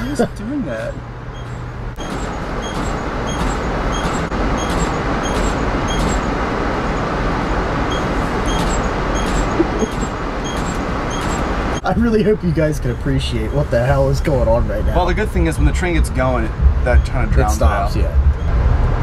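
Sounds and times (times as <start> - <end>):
steady rushing train noise: 0.0 - 19.0
train door warning beeps: 1.3 - 7.1, 7.8 - 11.9.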